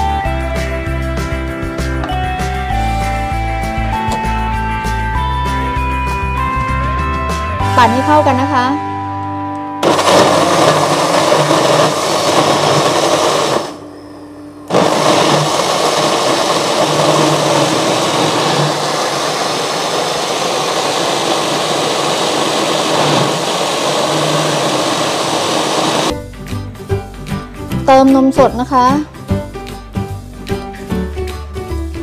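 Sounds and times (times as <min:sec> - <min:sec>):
electric blender whirring: 0:09.8 - 0:13.8, 0:14.7 - 0:26.1.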